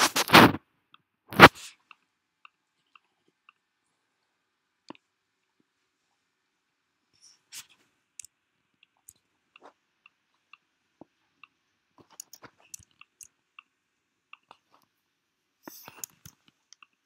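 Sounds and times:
mouse and keyboard clicking: 0:11.4 - 0:13.7, 0:15.6 - 0:17.0.

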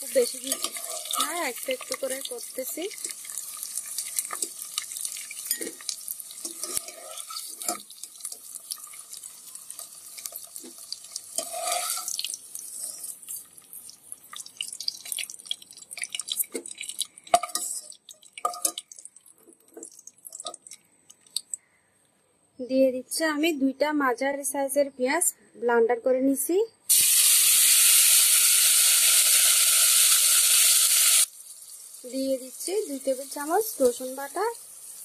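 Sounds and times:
eggs sizzling in hot oil: 0:00.0 - 0:21.5, 0:26.9 - 0:35.0
oil popping and crackling: 0:00.0 - 0:21.6.

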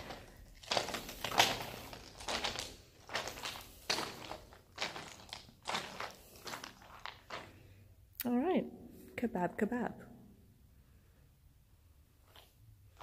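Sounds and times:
footsteps crunching on gravel: 0:00.0 - 0:07.6.

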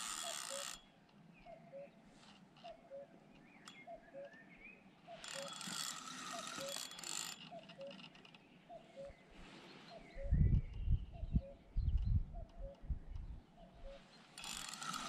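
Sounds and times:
fishing reel drag clicking: 0:00.0 - 0:00.8, 0:05.2 - 0:08.1, 0:14.4 - 0:15.0.

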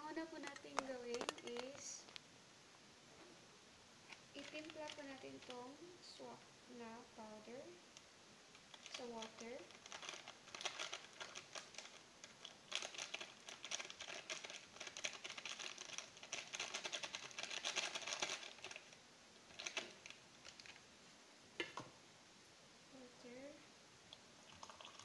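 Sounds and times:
plastic sachet crinkling: 0:00.4 - 0:02.2, 0:04.1 - 0:05.8, 0:08.6 - 0:20.8.

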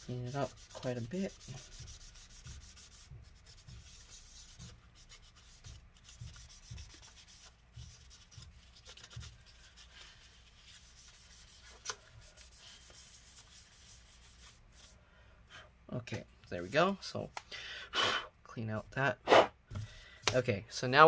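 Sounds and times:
paper towel rubbing: 0:00.0 - 0:15.0.

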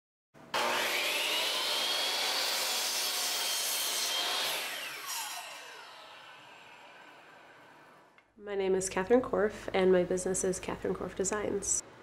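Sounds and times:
miter saw whining: 0:00.6 - 0:08.2.

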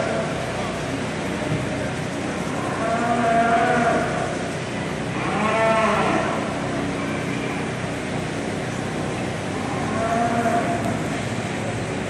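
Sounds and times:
steady background noise: 0:00.0 - 0:12.0
cattle mooing: 0:02.5 - 0:04.3, 0:05.2 - 0:06.5, 0:09.6 - 0:11.0.

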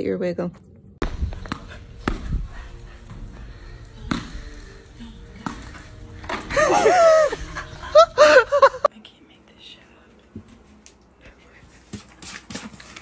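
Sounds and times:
tennis ball bouncing on hard floor: 0:01.0 - 0:02.4, 0:04.0 - 0:04.6, 0:05.4 - 0:06.5.

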